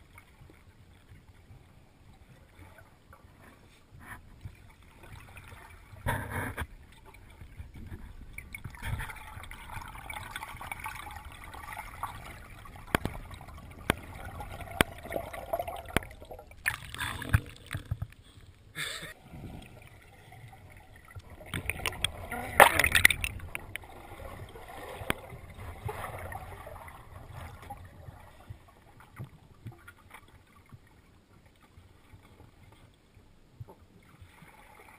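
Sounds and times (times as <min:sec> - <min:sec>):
underwater gurgling and bubbling: 0:00.0 - 0:18.3, 0:19.1 - 0:30.2
rushes of bubbles: 0:06.7 - 0:18.3, 0:19.1 - 0:29.2
sharp clicks and knocks: 0:21.2 - 0:23.9.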